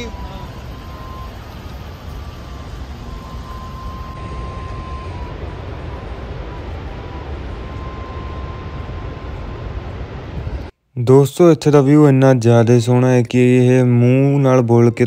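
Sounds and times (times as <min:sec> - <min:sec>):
thin high tone: 0:00.0 - 0:10.7.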